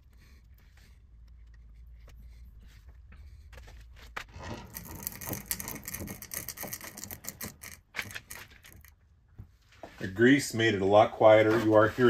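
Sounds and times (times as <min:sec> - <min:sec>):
greased gears crackling and ticking: 0:04.3 - 0:09.0.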